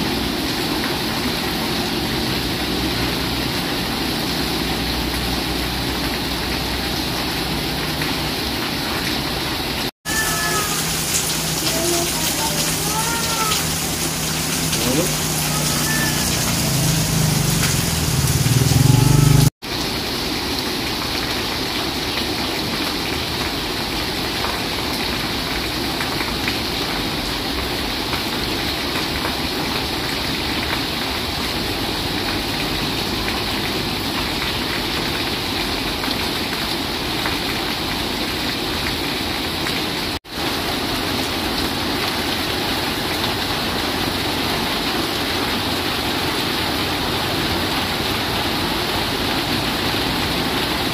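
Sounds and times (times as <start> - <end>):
heavy rain: 0.0 - 50.9
motorcycle engine approaching: 13.8 - 19.5.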